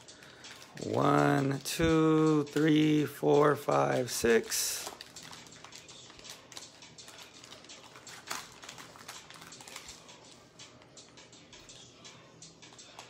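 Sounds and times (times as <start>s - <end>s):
plastic wrapped packs crinkling: 0.0s - 1.6s, 3.9s - 10.1s.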